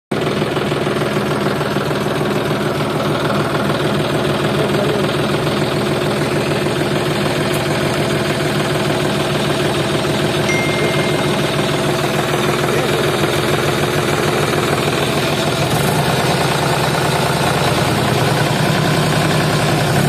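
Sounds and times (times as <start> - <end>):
tractor engine idling: 0.1 - 20.0.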